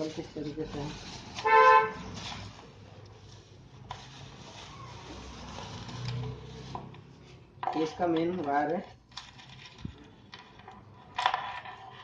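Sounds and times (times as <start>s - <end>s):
plastic bag rustling: 0.0s - 7.4s.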